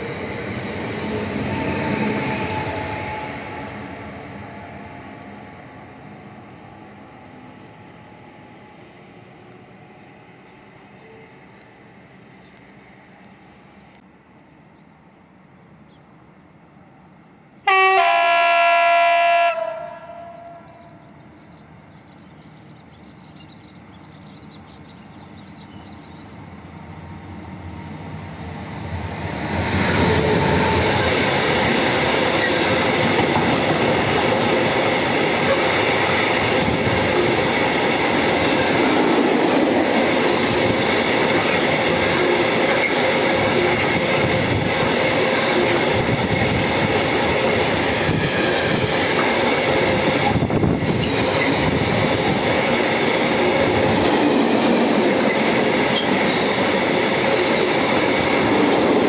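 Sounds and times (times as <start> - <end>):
train wheels rumbling and clattering: 0.0 - 5.7, 20.7 - 59.0
locomotive horn chord: 17.6 - 21.0.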